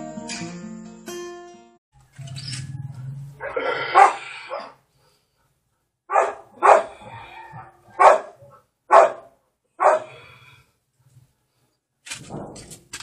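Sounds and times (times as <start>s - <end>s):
dog barking: 3.4s - 4.8s, 6.1s - 10.2s.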